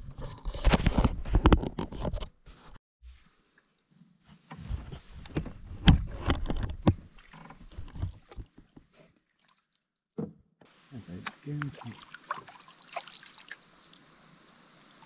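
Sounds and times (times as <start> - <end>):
knocks against a canoe: 10.2 - 10.4.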